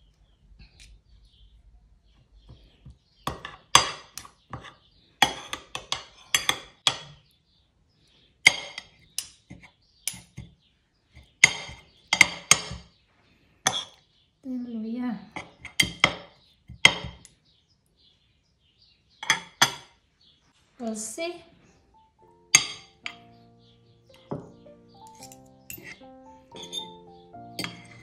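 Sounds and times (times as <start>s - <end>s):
cutlery clinking on a plate: 3.3s - 7.2s, 8.5s - 10.5s, 11.4s - 12.9s, 24.3s - 27.0s, 27.6s - 28.0s.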